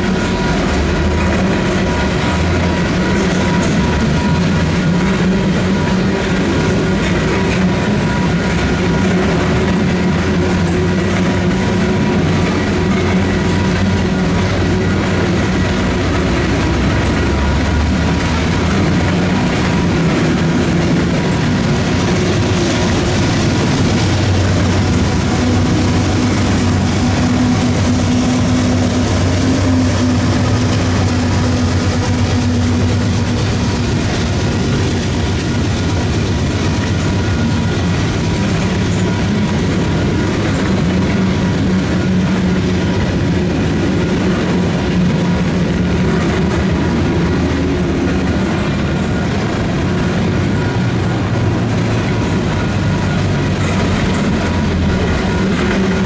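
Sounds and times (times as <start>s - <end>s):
crossing bells ringing: 0.0s - 56.0s
diesel engine drone: 0.0s - 56.0s
freight train rolling past: 0.0s - 56.0s.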